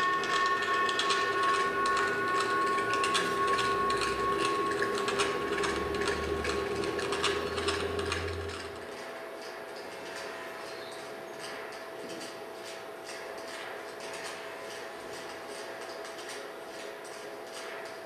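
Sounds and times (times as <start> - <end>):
low hum: 0.0 - 8.9
steady high tones: 0.0 - 8.9
dense irregular clicking: 0.0 - 18.0.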